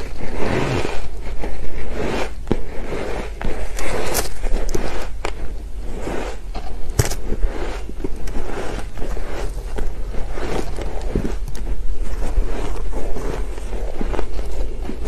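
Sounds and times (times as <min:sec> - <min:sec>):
metal spoon scraping ice: 0:00.0 - 0:15.0
chewing shaved ice: 0:07.8 - 0:15.0.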